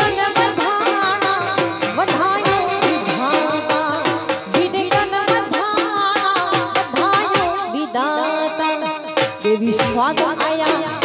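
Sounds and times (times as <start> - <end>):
woman singing folk song: 0.0 - 8.9
dhol drum beat: 0.0 - 11.0
indian banjo: 0.0 - 11.0.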